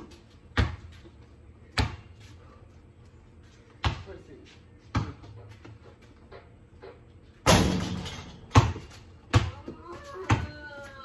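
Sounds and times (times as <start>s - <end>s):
loud ringing bang: 7.5s - 8.4s
basketball dribbling: 8.5s - 10.6s.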